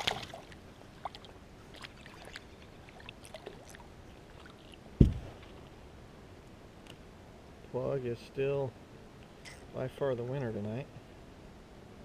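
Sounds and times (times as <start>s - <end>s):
water lapping against kayak: 0.0s - 5.6s
dull low thump: 5.0s - 5.5s.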